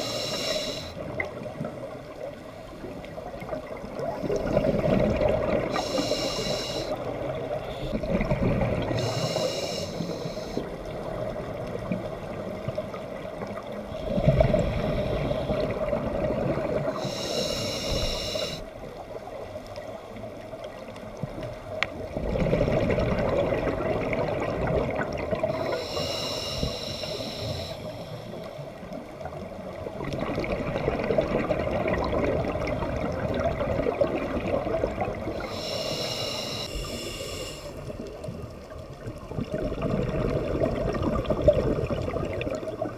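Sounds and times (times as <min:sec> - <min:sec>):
gurgling exhale bubbles: 0:03.2 - 0:09.5, 0:13.5 - 0:18.6, 0:22.0 - 0:26.0, 0:29.4 - 0:42.9.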